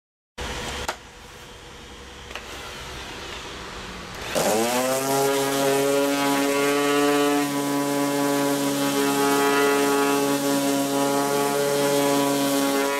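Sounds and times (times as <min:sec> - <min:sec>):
electric sander motor whining: 0:04.2 - 0:12.9.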